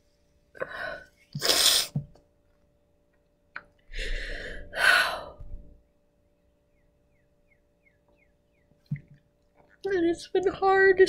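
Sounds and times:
long sighing breaths: 3.9 - 5.6.

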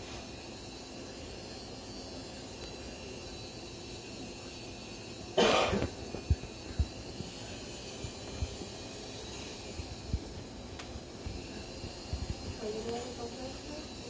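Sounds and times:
short cough: 5.4 - 6.0.

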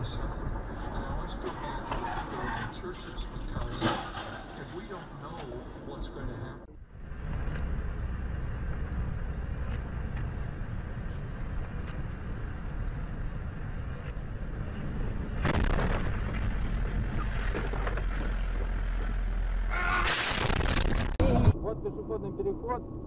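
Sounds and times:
vehicle driving on snowy road: 4.8 - 23.0.

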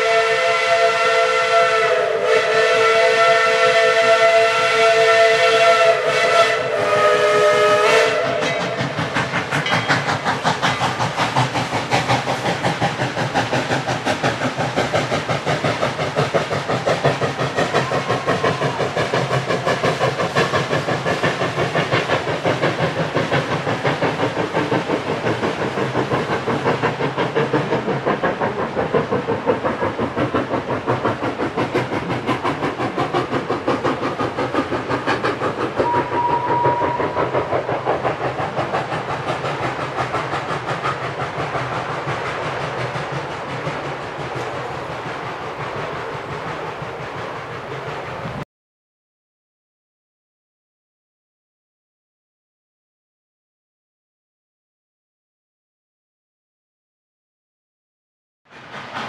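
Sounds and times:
steam locomotive whistle: 0.0 - 9.2, 17.6 - 19.3, 35.8 - 37.5
steam locomotive chuffing: 0.0 - 48.4, 58.5 - 59.0.

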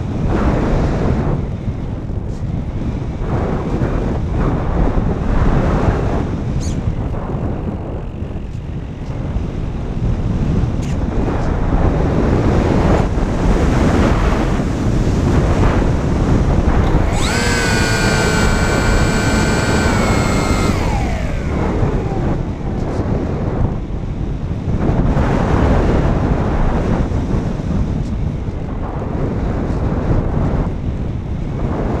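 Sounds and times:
wind rushing over microphone: 0.0 - 32.0
electric motor and propeller whine: 16.6 - 24.2.

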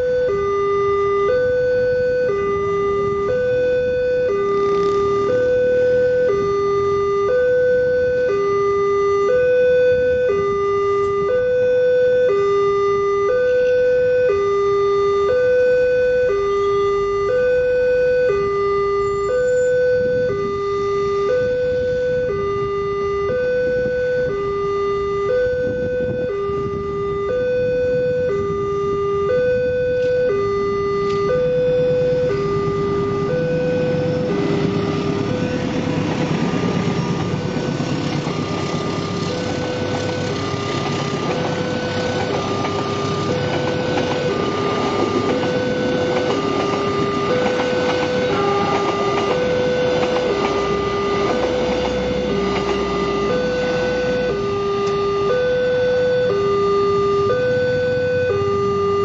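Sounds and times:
level crossing two-tone alarm: 0.0 - 59.0
low rumble of train: 0.9 - 8.3, 19.0 - 56.3.

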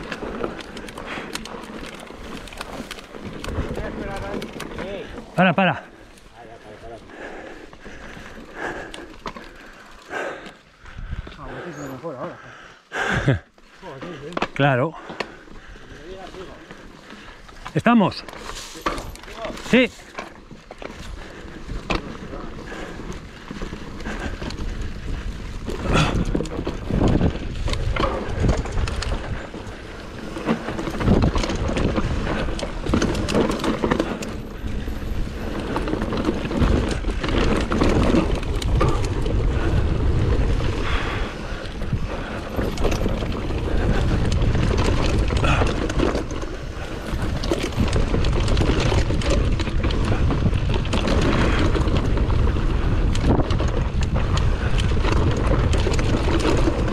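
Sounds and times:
wind buffeting microphone: 5.8 - 11.7, 20.8 - 56.9.

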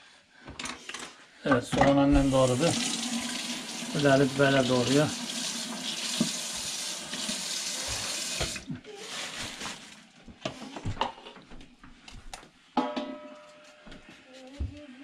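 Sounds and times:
water running from a tap: 2.2 - 8.7.

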